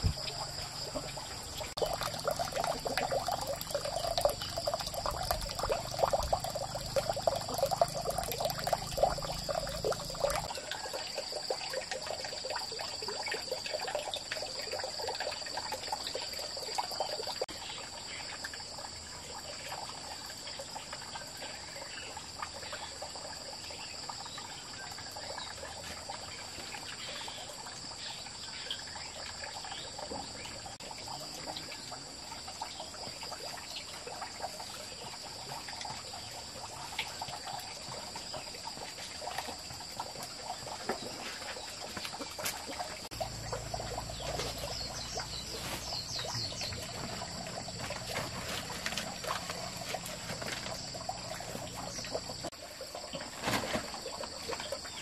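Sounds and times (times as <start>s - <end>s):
insect trilling: 0.0s - 18.4s
water trickling: 0.0s - 55.0s.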